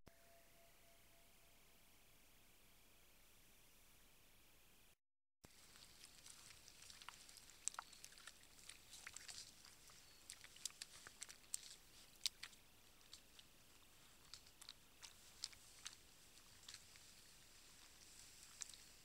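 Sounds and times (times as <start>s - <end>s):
wet clicks and small splashes: 5.5s - 19.0s.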